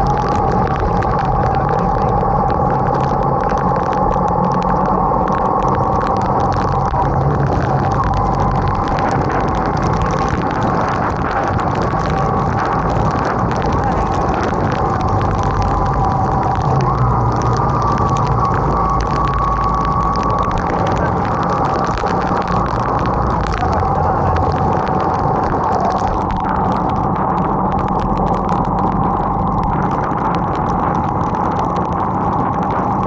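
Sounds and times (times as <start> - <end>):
raindrops ticking: 0.0 - 33.0
wind and rain rushing: 0.0 - 33.0.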